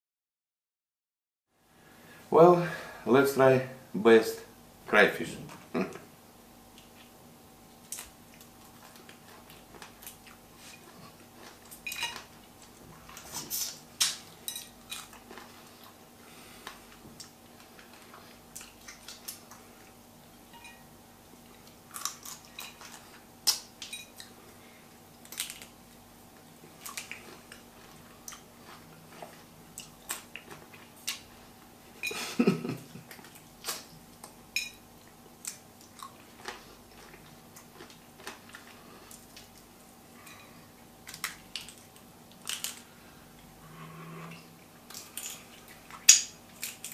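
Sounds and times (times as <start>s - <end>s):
faint steady hum: 1.5s - 46.9s
chewing: 7.8s - 13.8s, 16.6s - 20.0s, 26.7s - 31.4s, 35.0s - 43.0s
shells cracking and snapping: 25.2s - 25.8s, 41.0s - 42.9s, 44.9s - 46.9s.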